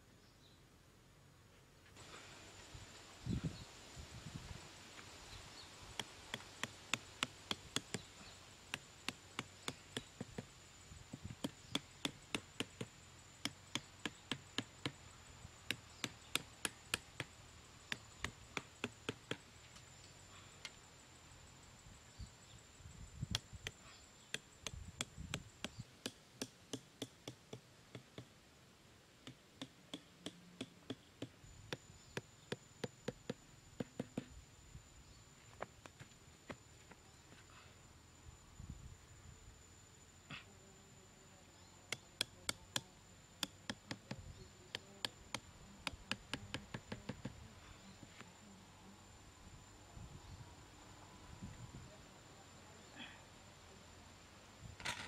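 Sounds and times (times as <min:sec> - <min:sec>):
faint high whine: 0:31.4 - 0:55.0.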